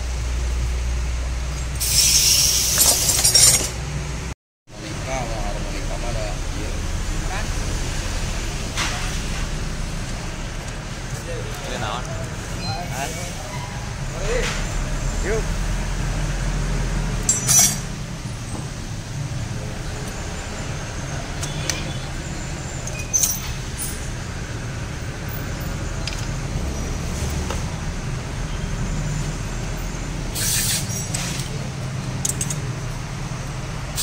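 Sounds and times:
short hissing burst: 30.4 - 31.4.

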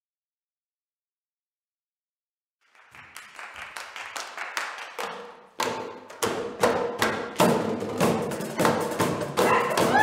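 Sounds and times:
people clapping rhythm: 2.6 - 10.0.

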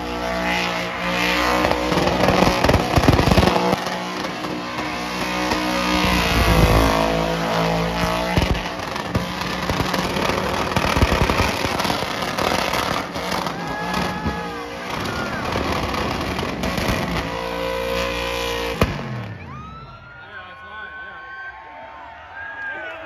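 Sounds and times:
race car engine revving: 0.0 - 19.4
exhaust pops: 1.6 - 17.6.

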